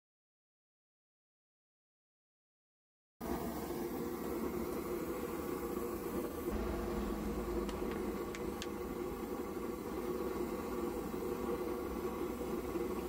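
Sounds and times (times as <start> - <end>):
pressure stove burner rushing: 3.2 - 13.0.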